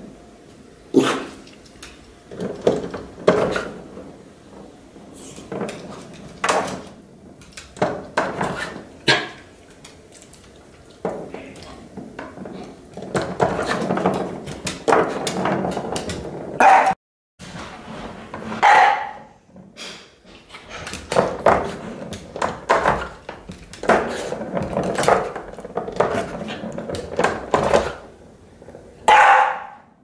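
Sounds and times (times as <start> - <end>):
ball knocking in plastic track: 1.7 - 9.0, 9.7 - 16.6, 20.9 - 29.1.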